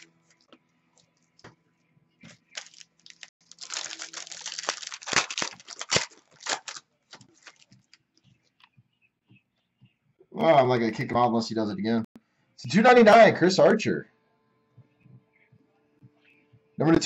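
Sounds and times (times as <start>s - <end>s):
foil wrapper crinkling and tearing: 0.0s - 0.4s, 2.3s - 8.0s.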